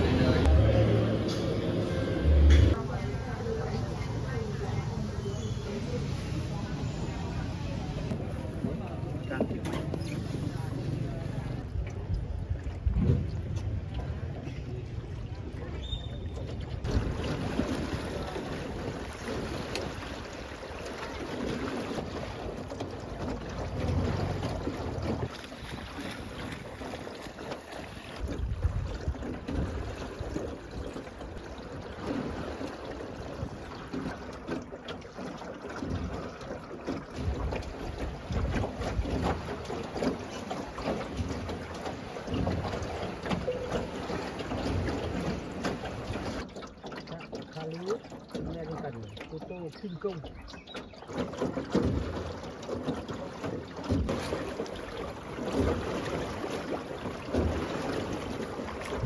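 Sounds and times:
water lapping and trickling: 0.0 - 59.0
wind buffeting microphone: 28.2 - 30.8.

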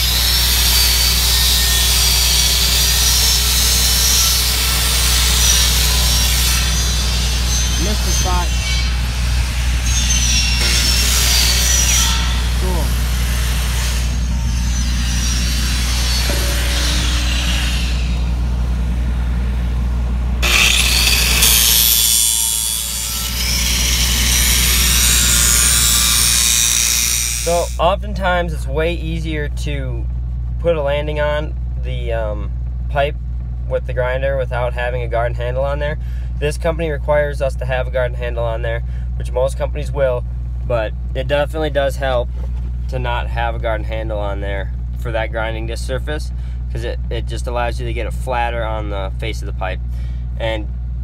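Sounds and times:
angle grinder grinding steel: 0.0 - 18.4, 20.4 - 27.8
low engine drone: 11.6 - 33.9, 45.9 - 47.2, 48.7 - 51.0.

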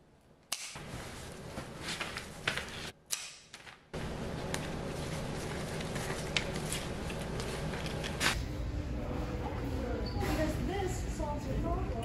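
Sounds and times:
steady low hum: 3.9 - 12.0.

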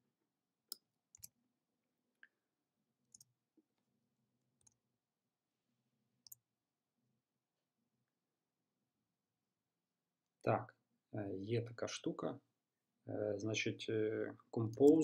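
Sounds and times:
faint mouse and keyboard clicks: 14.7 - 15.0.

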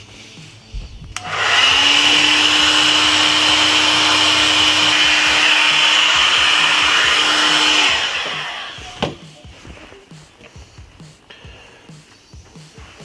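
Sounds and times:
heat gun blowing air: 1.2 - 9.2.

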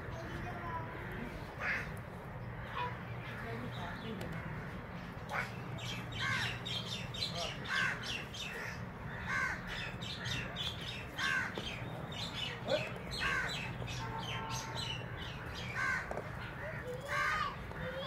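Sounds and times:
crows cawing: 1.0 - 2.0, 2.6 - 18.0.

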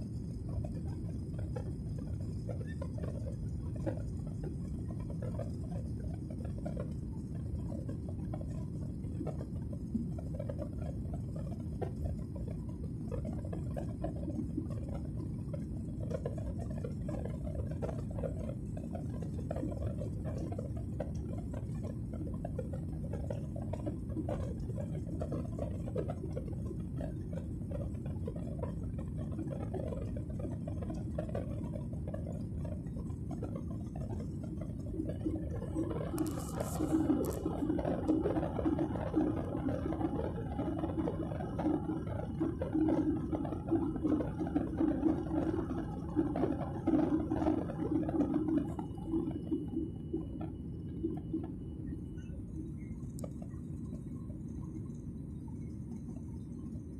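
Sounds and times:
faint crackles: 0.1 - 56.8
airliner cabin rumble: 33.2 - 55.0.

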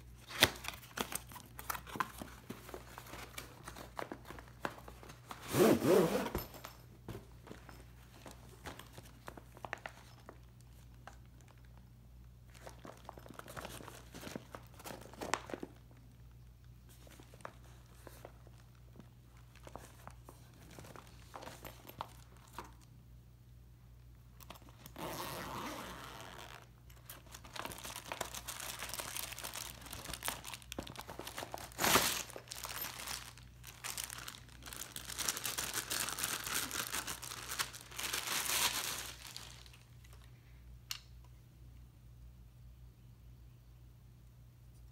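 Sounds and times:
plastic wrapping crinkling: 12.5 - 22.9, 26.0 - 40.3.

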